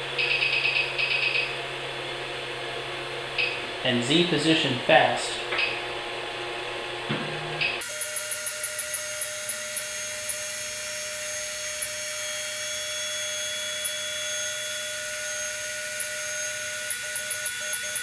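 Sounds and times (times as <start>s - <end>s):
stepper motors whining: 7.6s - 18.0s.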